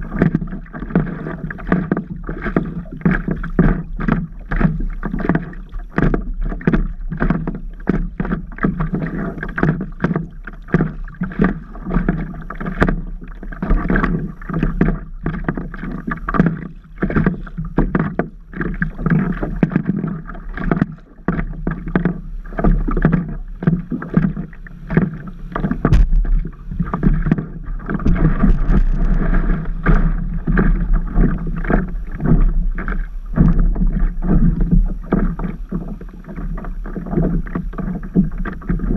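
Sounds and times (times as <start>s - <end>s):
low steady rumble: 0.0s - 38.9s
water splashing against a board: 0.0s - 38.9s.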